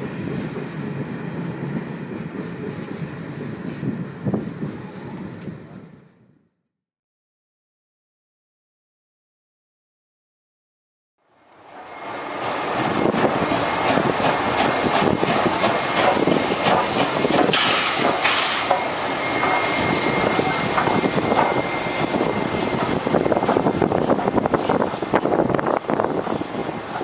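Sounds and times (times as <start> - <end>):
steam locomotive exhaust and hiss: 0.0 - 6.1, 11.3 - 27.0
rush of steam: 11.3 - 27.0.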